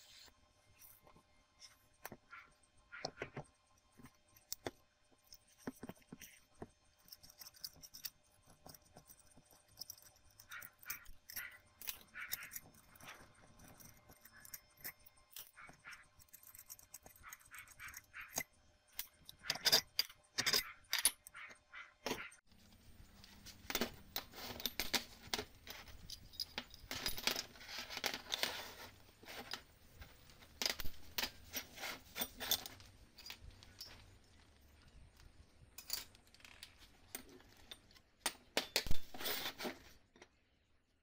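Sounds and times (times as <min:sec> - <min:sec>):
metal parts clinking on workbench: 0:19.0 - 0:21.4, 0:23.6 - 0:34.2.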